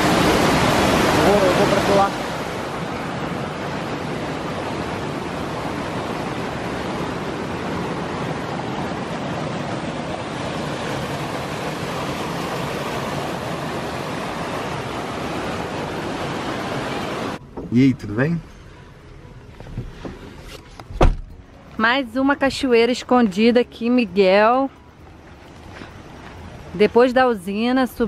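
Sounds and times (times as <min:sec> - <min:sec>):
mountain stream rushing over rocks: 0:00.0 - 0:17.4.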